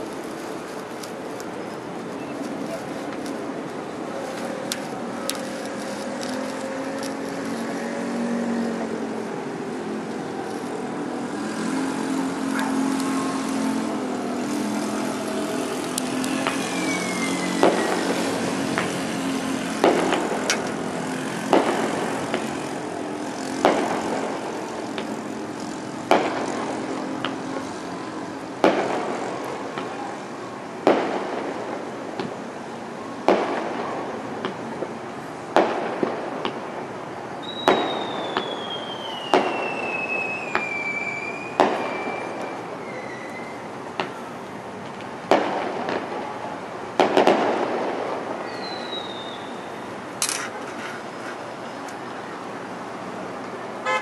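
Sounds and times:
firework bangs: 0.0 - 52.5
city background hum: 0.0 - 54.0
firework falling whistle: 12.5 - 18.9, 37.4 - 43.7, 48.4 - 49.8.

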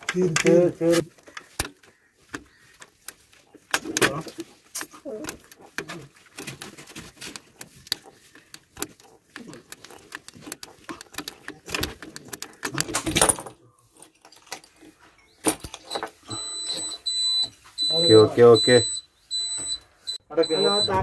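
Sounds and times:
knob clicking and rattling: 1.5 - 13.4
high warning buzzer beeping: 16.3 - 21.0.

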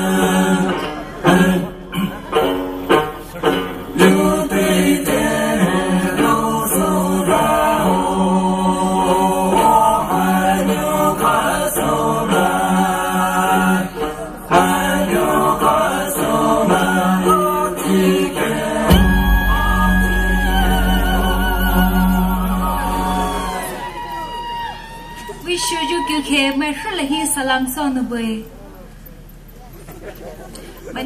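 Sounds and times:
choir singing long held notes: 4.0 - 25.3.

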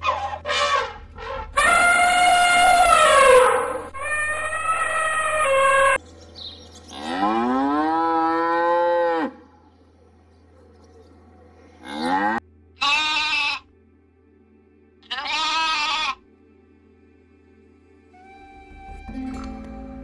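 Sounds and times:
elephant trumpeting: 0.0 - 6.0
short high-pitched animal calls: 1.6 - 6.0
cow mooing: 6.9 - 9.4, 11.8 - 13.6.

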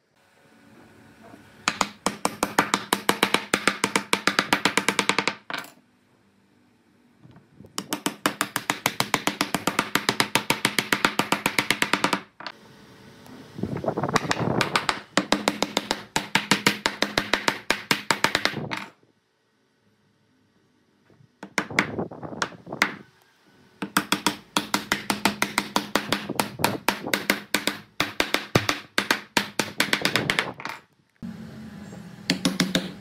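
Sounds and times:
wooden mallet tapping on wood: 23.8 - 30.8, 32.3 - 33.0.

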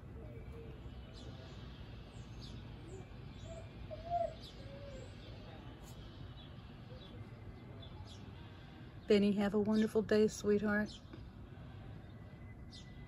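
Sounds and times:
birds chirping: 0.0 - 13.0
low background noise: 0.0 - 13.0
lower arching bird calls: 2.8 - 5.4.

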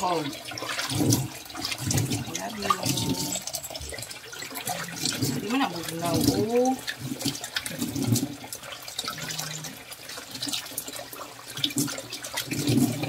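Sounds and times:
tap running into water: 0.0 - 13.0
water splashing: 0.0 - 13.0.

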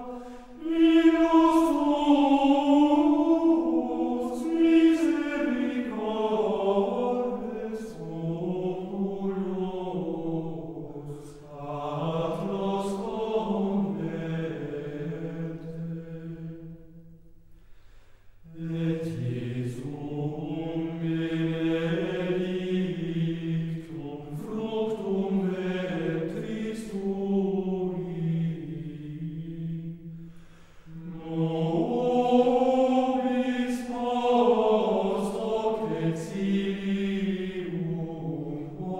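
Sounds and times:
voices chanting unaccompanied: 0.0 - 16.8, 18.5 - 38.9.

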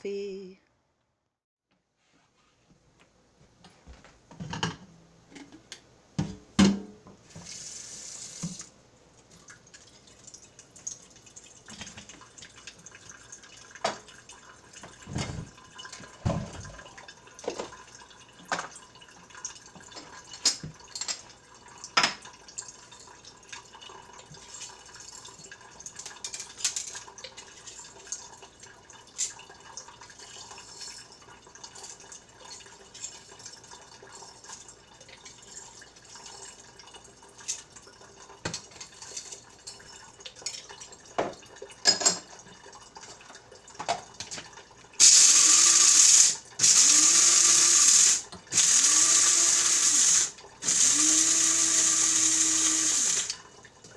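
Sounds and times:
mugs and utensils clinking: 38.4 - 42.4
electric coffee grinder: 45.0 - 53.4
faucet running thin stream: 45.0 - 53.8.

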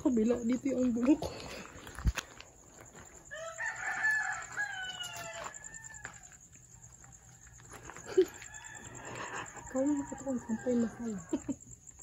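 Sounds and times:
rooster crowing: 3.2 - 6.5, 8.0 - 11.6.

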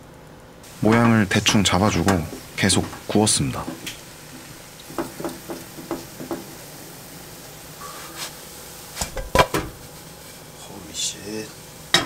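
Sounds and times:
faint frying sizzle: 0.0 - 12.0
pan knocking on stove grate: 0.9 - 6.7, 9.0 - 9.8
wooden spatula tapping a pan: 0.9 - 6.7.

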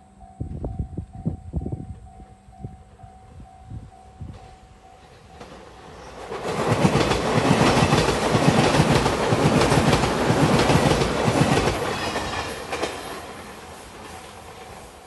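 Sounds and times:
electric train passing: 0.0 - 15.0
wheels clacking over rail joints: 4.3 - 15.0.

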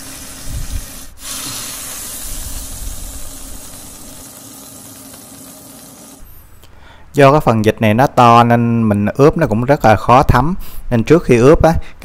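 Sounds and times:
duck skin sizzling in a pan: 0.0 - 6.2.

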